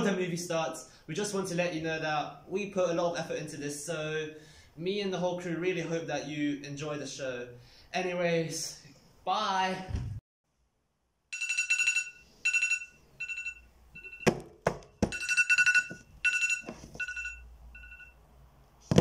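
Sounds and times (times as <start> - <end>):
smartphone alarm beeping: 11.4 - 14.4, 15.0 - 18.2.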